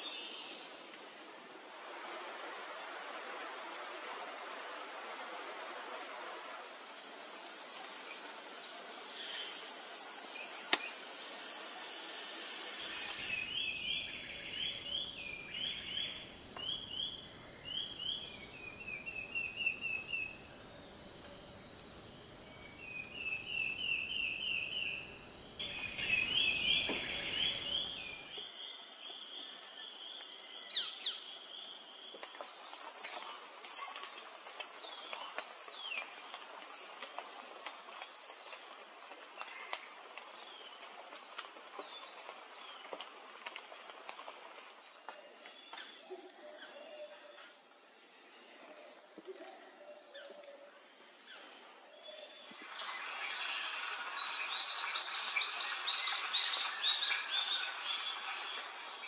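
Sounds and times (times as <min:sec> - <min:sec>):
insects ringing: 0:06.4 - 0:46.0, 0:49.8 - 0:59.0
birds chirping and whistling: 0:52.4 - 0:58.7.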